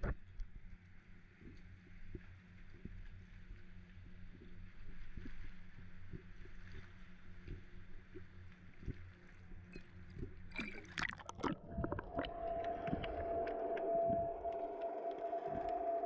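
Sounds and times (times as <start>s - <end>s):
splashing and crackling: 6.1s - 16.0s
water sloshing against camera: 8.8s - 16.0s
steady low hum: 11.4s - 16.0s.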